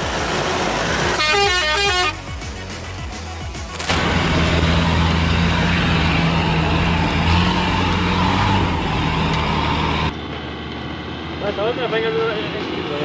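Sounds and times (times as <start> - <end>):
pickup truck engine pulling under load: 3.8 - 10.1.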